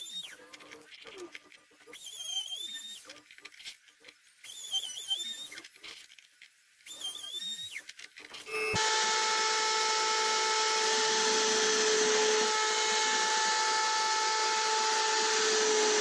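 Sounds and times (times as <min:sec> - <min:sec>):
scroll saw motor whine: 0:00.0 - 0:00.9, 0:01.8 - 0:03.8, 0:04.4 - 0:05.8, 0:06.8 - 0:16.0
faint handling sounds: 0:00.1 - 0:08.6.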